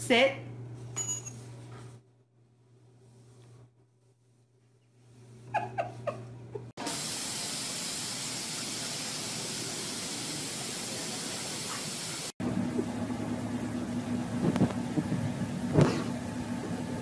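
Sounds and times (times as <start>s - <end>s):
water spraying hiss: 6.8s - 12.3s.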